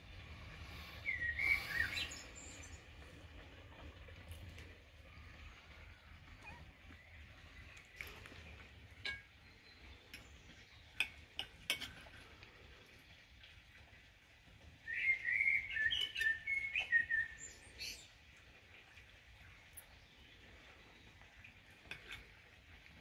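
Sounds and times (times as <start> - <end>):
bird singing: 0.8 - 2.9, 14.9 - 18.1
cutlery clinking on a plate: 11.0 - 12.2, 21.8 - 22.3.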